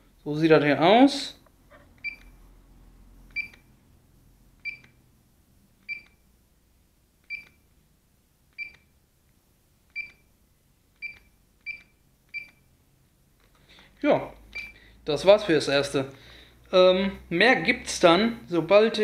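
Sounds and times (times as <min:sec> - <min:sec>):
transmitter key beeps: 0:02.0 - 0:02.3, 0:03.3 - 0:03.7, 0:04.6 - 0:05.0, 0:05.8 - 0:06.2, 0:07.3 - 0:07.6, 0:08.6 - 0:08.9, 0:09.9 - 0:10.3, 0:11.0 - 0:12.7, 0:14.5 - 0:14.8.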